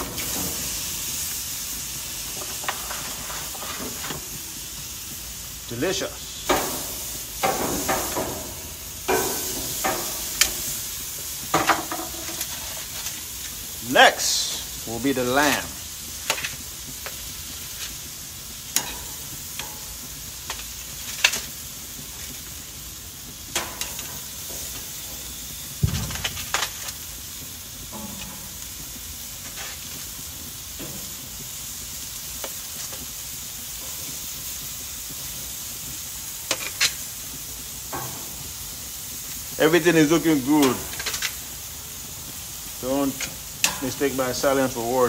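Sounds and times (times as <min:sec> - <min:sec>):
meat sizzling on grill: 0:00.0 - 0:45.0
metal tongs clacking on grate: 0:06.4 - 0:10.8, 0:16.2 - 0:18.0, 0:18.7 - 0:21.6, 0:23.5 - 0:24.8, 0:27.9 - 0:28.9, 0:36.4 - 0:37.0, 0:40.5 - 0:41.4, 0:43.0 - 0:44.3.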